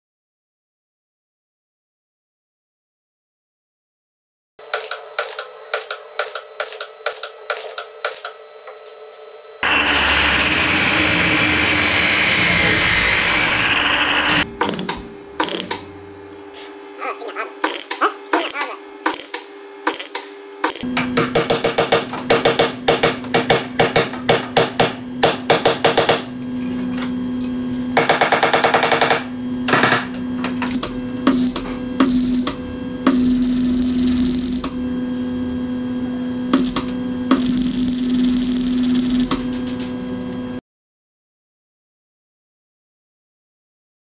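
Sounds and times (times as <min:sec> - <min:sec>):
welding arc crackle: 0:04.8 - 0:08.3, 0:14.6 - 0:15.8, 0:17.6 - 0:20.9, 0:30.7 - 0:34.8, 0:36.5 - 0:39.6
steady hum: 0:14.4 - 0:26.4, 0:28.9 - 0:40.5.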